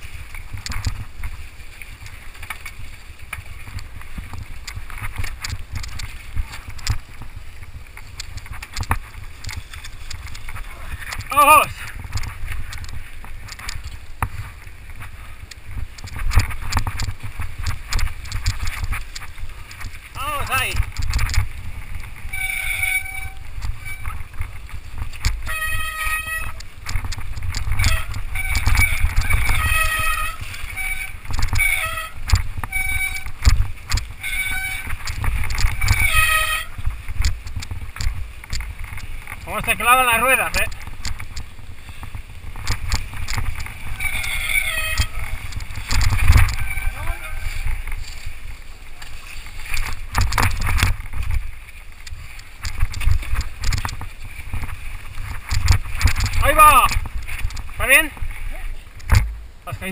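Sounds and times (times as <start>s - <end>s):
mountain bike clattering: 0.0s - 59.9s
wind rumble on microphone: 0.0s - 59.9s
brakes squealing: 22.0s - 37.2s, 42.9s - 50.7s.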